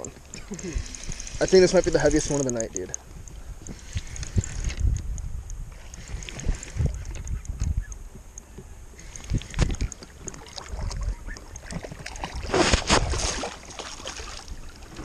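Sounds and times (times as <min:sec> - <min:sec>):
water splashing: 0:05.7 - 0:07.3, 0:09.0 - 0:15.0.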